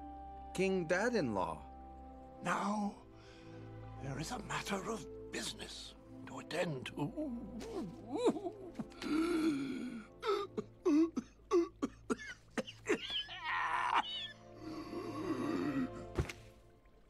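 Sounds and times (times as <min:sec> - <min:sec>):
comic coughs and gasps: 0:08.2 - 0:13.2.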